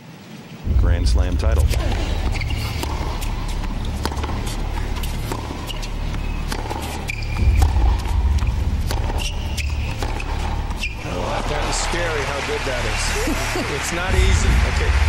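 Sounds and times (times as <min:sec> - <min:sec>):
low stadium rumble: 0:00.6 - 0:15.0
tennis ball hit and bouncing: 0:01.6 - 0:12.4
shoe squeaks: 0:02.2 - 0:11.1.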